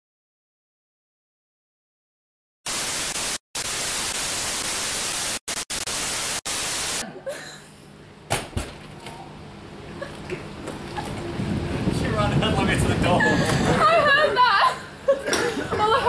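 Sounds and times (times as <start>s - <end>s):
tv static hiss: 2.7s - 7.0s.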